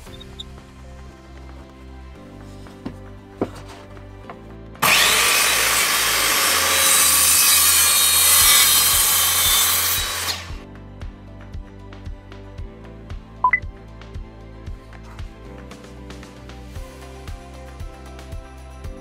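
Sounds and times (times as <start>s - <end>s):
circular saw cutting wood: 4.8s - 10.6s.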